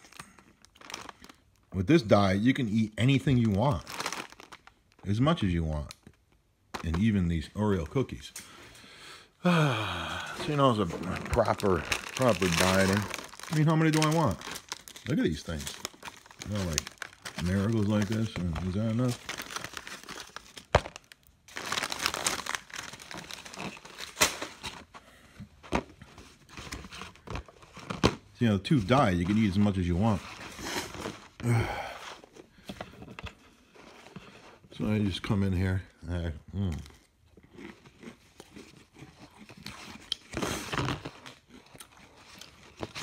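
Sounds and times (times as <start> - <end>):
plastic wrapper crinkling: 0.0 - 8.3, 10.4 - 25.0
person chewing crunchy cookie: 36.5 - 43.0.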